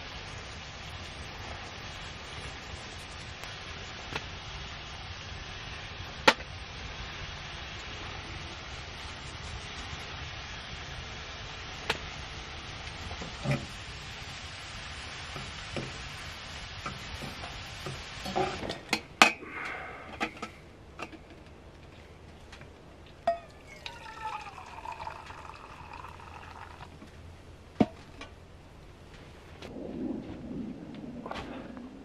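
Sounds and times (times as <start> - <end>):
meat sizzling in skillet: 0.0 - 19.4
water pouring into metal mug: 23.2 - 27.0.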